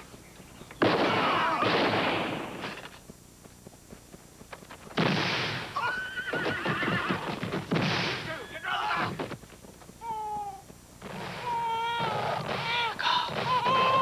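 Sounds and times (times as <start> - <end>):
gunfire bursts: 0.8 - 2.7, 5.0 - 5.8
horse whinnying: 5.8 - 7.4.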